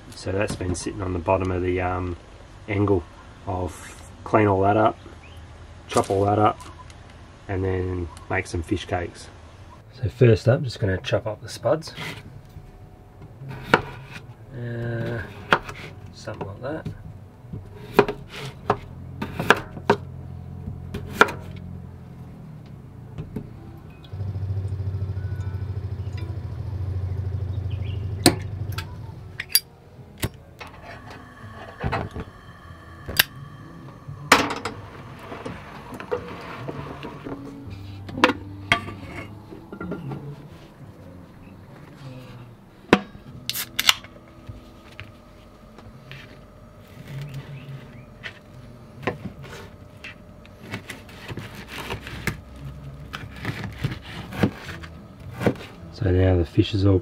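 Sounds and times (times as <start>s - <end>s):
faint low hum: 0.0s - 57.0s
water pump humming: 23.6s - 27.7s, 30.6s - 38.8s.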